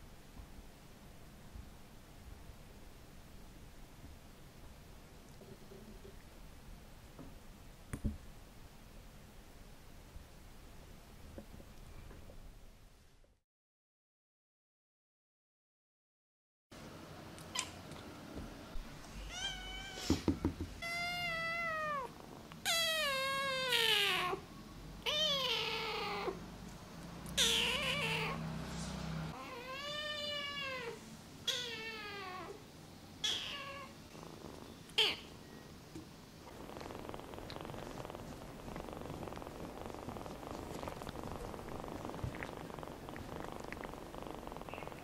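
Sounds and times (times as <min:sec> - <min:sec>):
kitten meowing: 0:27.4 - 0:28.4, 0:33.2 - 0:33.9.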